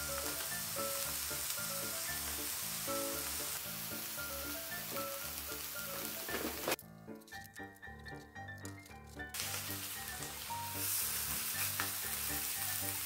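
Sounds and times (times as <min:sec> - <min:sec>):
fish sizzling on a grill: 0:00.0 - 0:06.8, 0:09.4 - 0:13.0.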